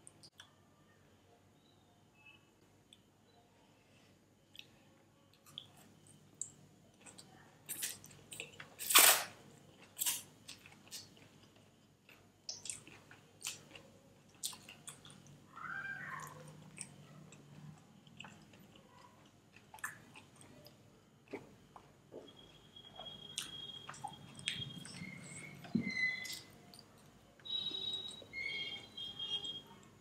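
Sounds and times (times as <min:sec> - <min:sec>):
chewing with wet smacks: 0:05.3 - 0:08.7, 0:09.8 - 0:15.4, 0:16.1 - 0:28.3.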